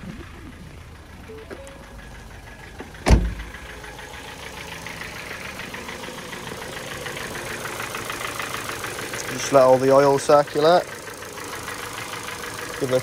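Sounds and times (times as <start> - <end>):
car engine idling: 0.0 - 13.0
car door slamming: 2.8 - 3.6.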